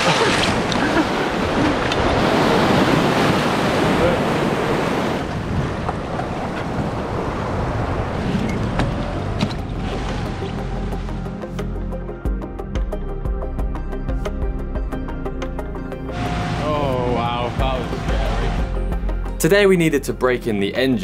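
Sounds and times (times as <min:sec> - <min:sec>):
wind buffeting microphone: 0:00.0 - 0:10.5
surf breaking: 0:00.0 - 0:11.2
seawater splashing around boat: 0:00.0 - 0:11.4.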